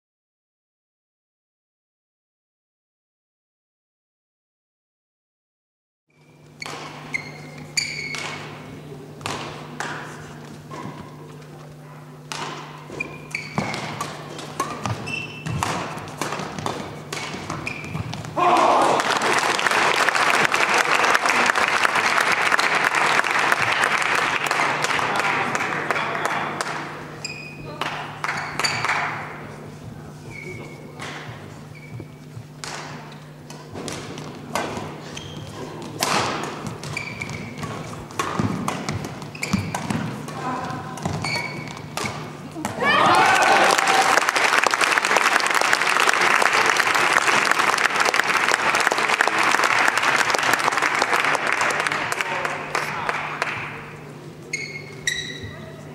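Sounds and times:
sneaker squeaks: 6.1 - 8.7, 9.3 - 18.4, 27.0 - 29.2, 30.1 - 33.8, 34.8 - 43.0, 54.4 - 55.9
rackets striking shuttlecock: 6.5 - 11.6, 12.2 - 18.4, 27.7 - 29.4, 30.9 - 42.8.

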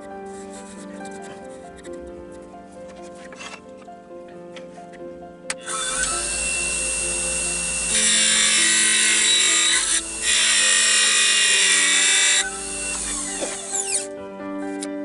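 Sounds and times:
chisel cutting spinning wood: 5.6 - 14.1.

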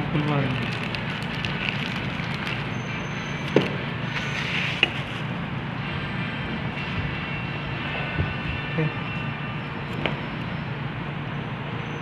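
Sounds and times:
steady background hum: 0.0 - 12.0
plastic bag crinkling: 0.2 - 4.8.

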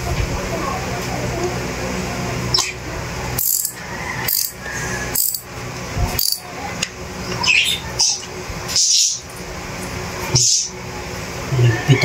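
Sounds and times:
socket wrench ratcheting: 3.4 - 4.6, 5.2 - 5.4, 6.2 - 6.4.

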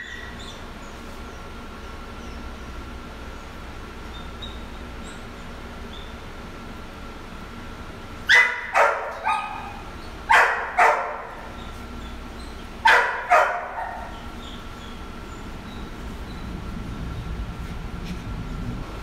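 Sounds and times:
dog barking: 8.3 - 11.7, 12.8 - 14.2.

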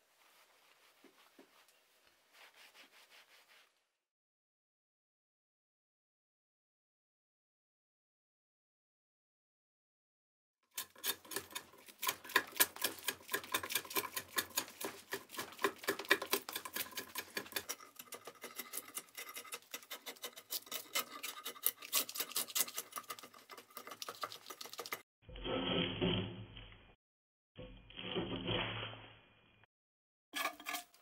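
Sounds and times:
blade scraping bark from log: 10.8 - 26.1.

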